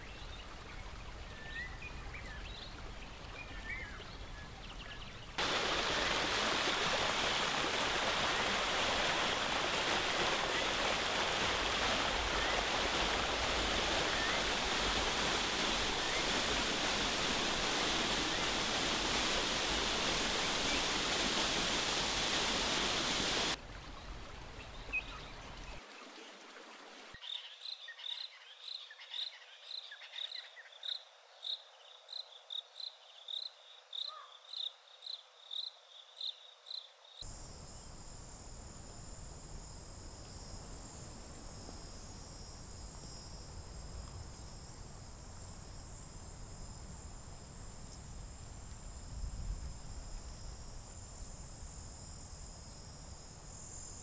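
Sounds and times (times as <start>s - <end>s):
insects droning: 5.2s - 23.6s, 28.6s - 54.0s
insect chirping: 5.4s - 23.6s, 27.6s - 54.0s
waterfall rushing: 5.4s - 23.6s.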